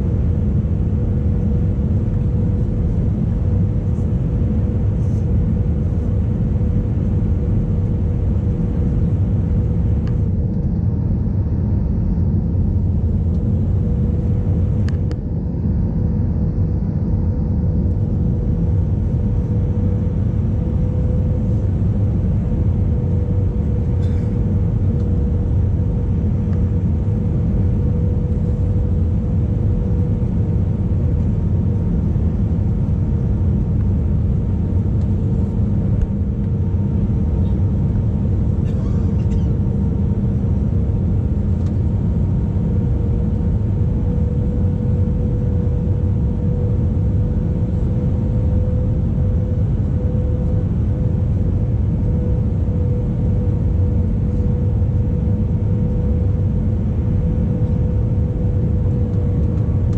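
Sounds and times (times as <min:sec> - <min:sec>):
constant hum-like tone: 0:00.0 - 0:59.9
jet engine and airflow rumble: 0:00.0 - 0:59.9
faint click: 0:14.8 - 0:15.2.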